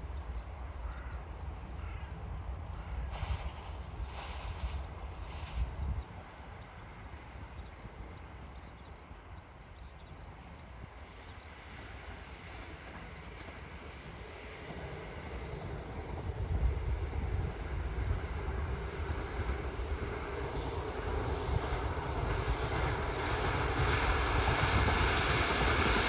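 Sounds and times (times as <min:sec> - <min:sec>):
diesel train approaching: 0:00.0 - 0:26.0.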